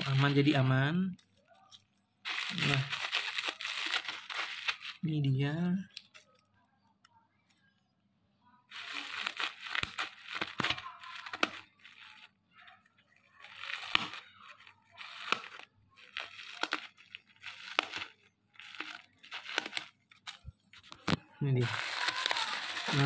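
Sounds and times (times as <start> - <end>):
scissors snipping bubble wrap: 0.0 - 0.5, 2.3 - 5.0, 8.8 - 12.3, 13.1 - 20.5, 21.7 - 23.0
plastic crinkling: 0.0 - 6.5, 8.7 - 23.0.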